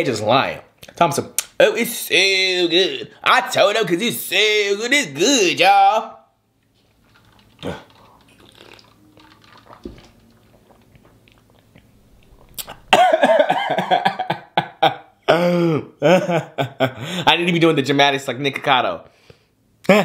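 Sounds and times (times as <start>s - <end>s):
man chewing: 6.6s - 13.2s.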